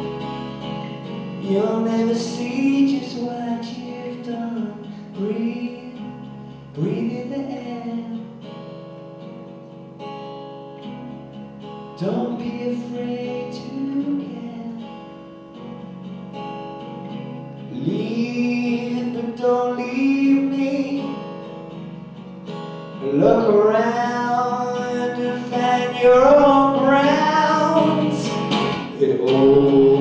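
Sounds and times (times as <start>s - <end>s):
acoustic guitar strumming: 0.0s - 30.0s
man singing softly: 1.4s - 8.2s, 12.0s - 15.0s, 17.7s - 21.1s, 23.0s - 30.0s.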